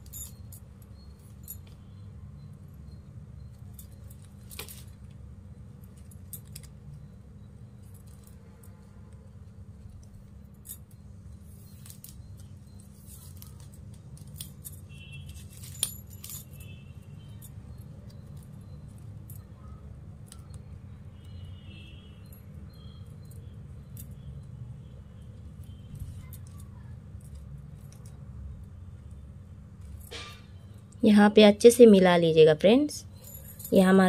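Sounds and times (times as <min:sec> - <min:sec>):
metal bangles jingling: 0:00.0 - 0:31.0, 0:32.8 - 0:34.0
plastic wire rustling and clicking: 0:11.6 - 0:16.5, 0:25.4 - 0:29.2.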